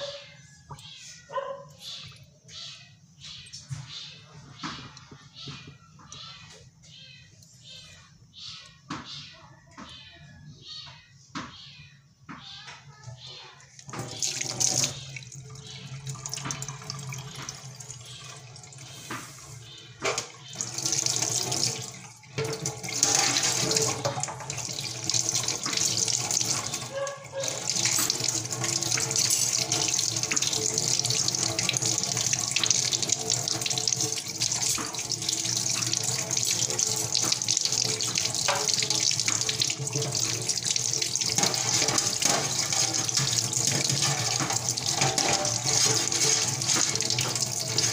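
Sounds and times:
tap water running into steel sink: 0:13.8 - 0:47.9.

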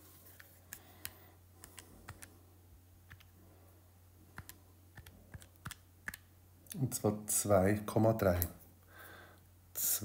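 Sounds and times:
faint low hum: 0:00.0 - 0:10.0
calculator keys clicking: 0:03.1 - 0:03.3, 0:04.4 - 0:06.3.

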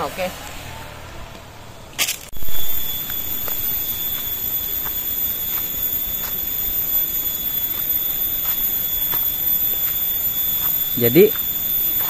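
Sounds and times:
high-pitched insect drone: 0:02.4 - 0:12.0.

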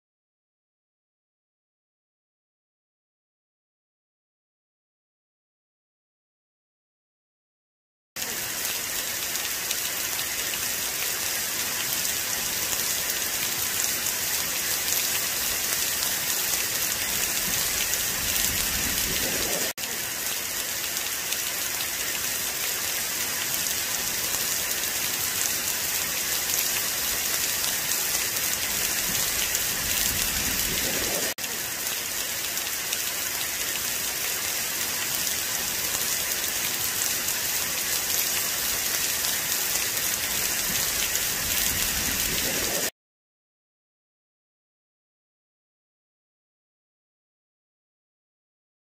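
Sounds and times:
rain pouring onto grass: 0:08.2 - 0:42.9.

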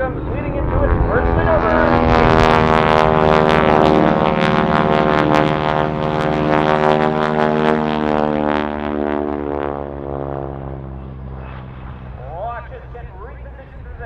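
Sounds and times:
radial aircraft engine and propeller: 0:00.0 - 0:14.0.

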